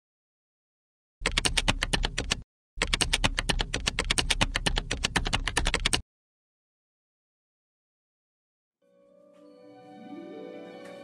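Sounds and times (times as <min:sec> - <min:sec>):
keyboard typing clicks: 0:01.2 - 0:06.0.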